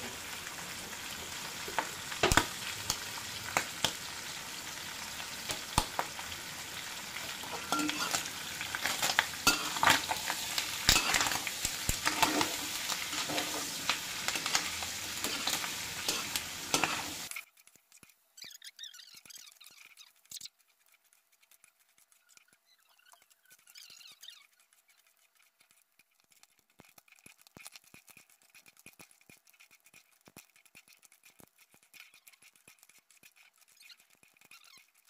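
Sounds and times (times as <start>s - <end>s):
pork fat frying with pops: 0.0s - 35.0s
metal ladle scraping wok: 7.2s - 17.3s.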